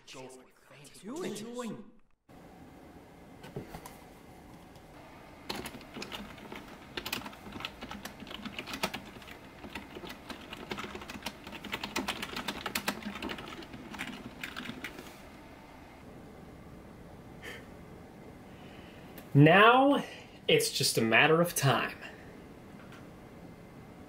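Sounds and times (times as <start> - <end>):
computer keyboard typing: 5.4 - 15.1.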